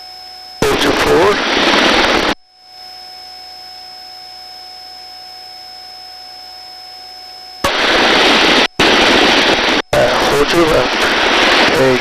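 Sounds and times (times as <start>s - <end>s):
constant electronic tones: 0.0s - 12.0s
faint steady hiss: 0.0s - 12.0s
rotor and wind rush: 0.7s - 2.4s, 7.6s - 12.0s.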